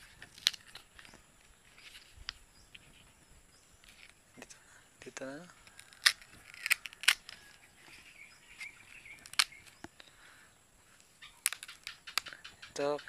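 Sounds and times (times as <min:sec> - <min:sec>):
leaf stalk snapping: 0:00.0 - 0:01.2, 0:05.6 - 0:07.6, 0:08.6 - 0:10.1, 0:11.2 - 0:12.5.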